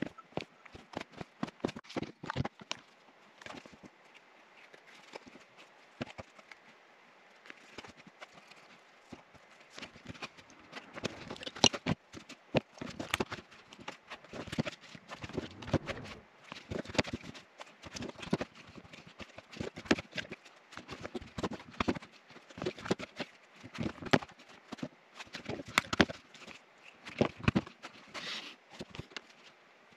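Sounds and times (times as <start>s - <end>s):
tools clicking and tapping on leather: 0.0s - 3.9s, 16.7s - 28.0s.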